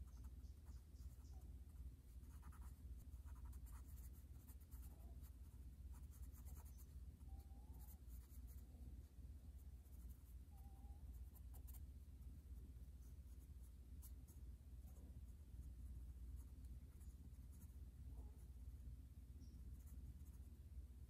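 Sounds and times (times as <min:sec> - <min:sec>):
pencil scratching on paper: 0:00.0 - 0:01.4, 0:02.2 - 0:06.9
low steady hum: 0:00.0 - 0:21.0.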